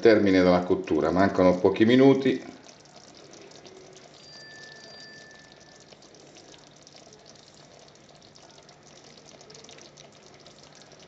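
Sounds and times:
stew bubbling in a pot: 0:00.0 - 0:11.0.

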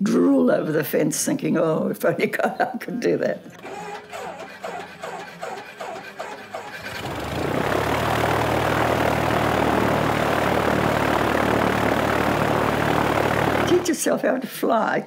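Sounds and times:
propeller aeroplane engine: 0:03.7 - 0:14.0.

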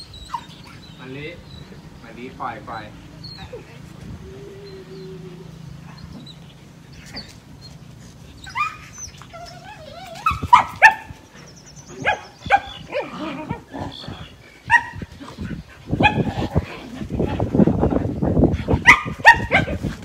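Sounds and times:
dogs whining and yipping: 0:00.0 - 0:02.0, 0:03.0 - 0:20.0
dogs barking: 0:10.2 - 0:15.1, 0:15.8 - 0:17.5, 0:18.7 - 0:19.9.

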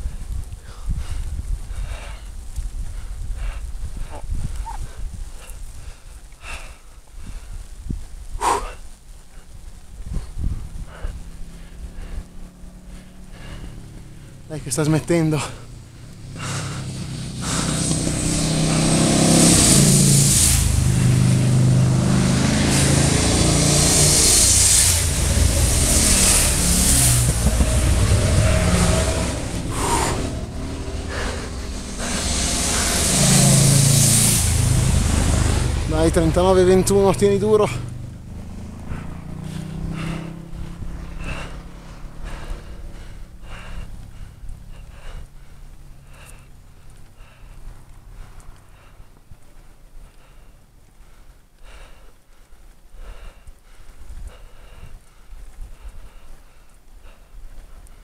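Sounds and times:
cyclist breathing hard: 0:00.0 - 0:58.0
motorcycle engine passing: 0:09.8 - 0:49.1.

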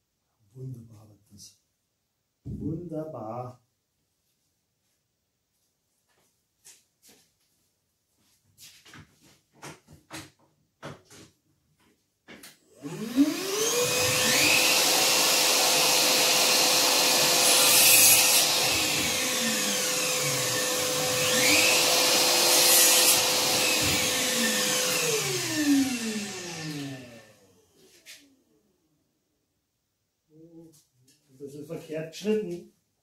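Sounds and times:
shop vacuum motor whining: 0:12.8 - 0:28.0.

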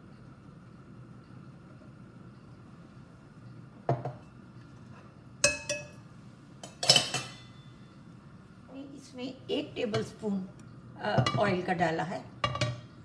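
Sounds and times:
metal spoon clinking on saucepan: 0:05.4 - 0:06.0, 0:06.6 - 0:07.7.

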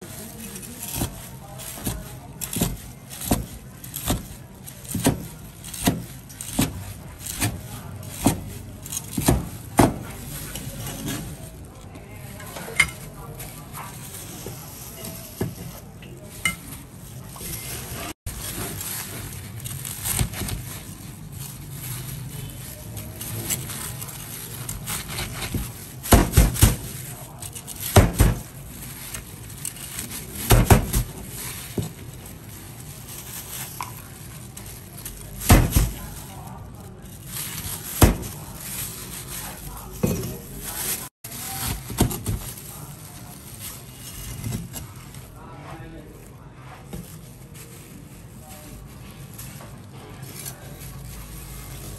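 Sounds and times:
crunching of fried crust: 0:00.0 - 0:51.9.

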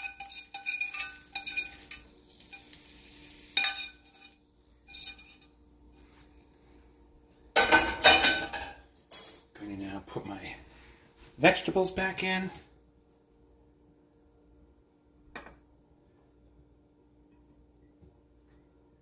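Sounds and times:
steel bowl clinking: 0:00.0 - 0:05.5
faint steady hum: 0:00.0 - 0:19.0.

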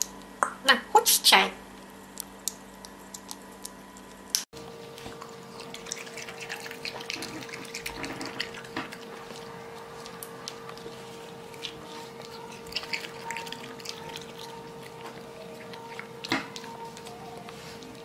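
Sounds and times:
steady low hum: 0:00.0 - 0:18.0
animal chewing and licking: 0:04.6 - 0:18.0.

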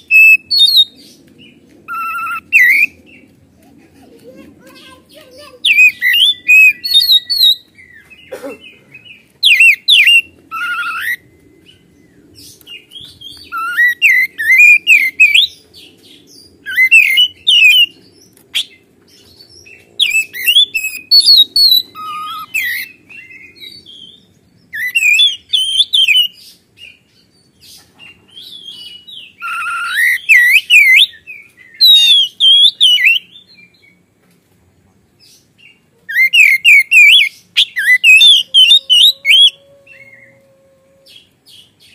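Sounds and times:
bird singing whistles and chirps: 0:00.0 - 0:01.1, 0:01.9 - 0:03.2, 0:05.6 - 0:08.1, 0:09.1 - 0:15.7, 0:16.3 - 0:18.0, 0:19.6 - 0:27.0, 0:28.3 - 0:34.0, 0:35.6 - 0:40.5.

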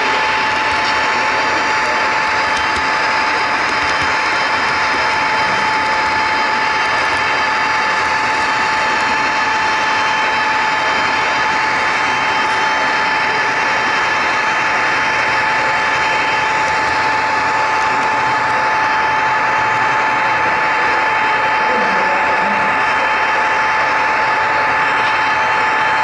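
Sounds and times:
model train motor whine: 0:00.0 - 0:26.0.

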